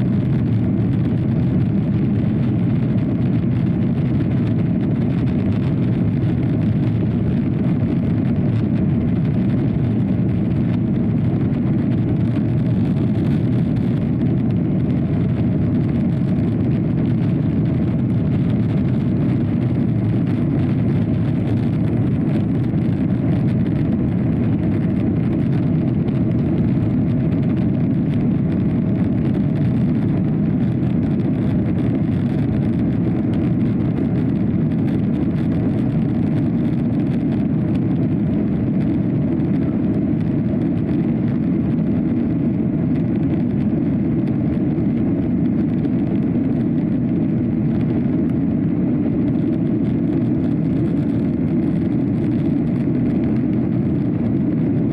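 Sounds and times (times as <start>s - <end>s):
jet engines and rushing air: 0.0s - 54.9s.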